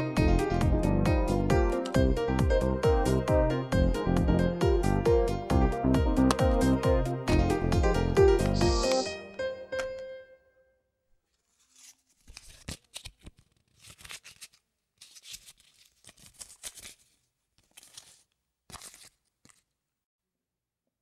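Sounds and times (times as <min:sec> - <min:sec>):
banknotes rustling: 0:11.3 - 0:19.8.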